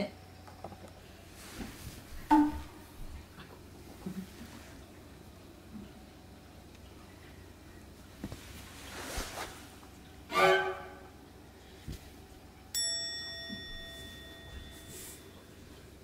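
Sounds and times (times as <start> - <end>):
faint rustles: 8.1 - 9.9
bell-like chime: 12.7 - 15.6.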